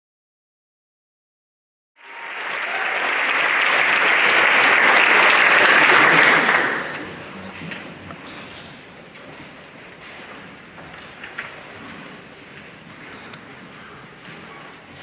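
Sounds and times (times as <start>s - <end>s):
audience applauding: 2.0s - 8.4s.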